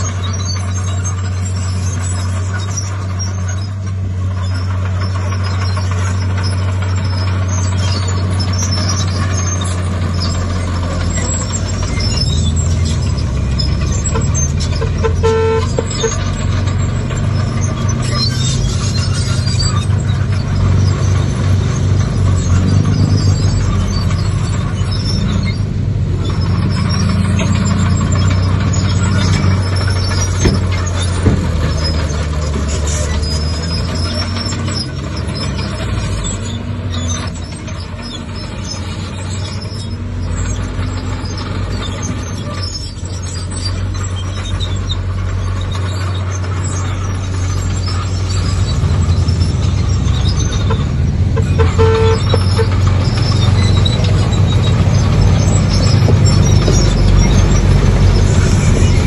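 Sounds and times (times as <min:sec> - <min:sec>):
heavy diesel machinery running: 0:00.0 - 0:59.0
brief horn toot: 0:14.8 - 0:16.1, 0:51.4 - 0:52.7.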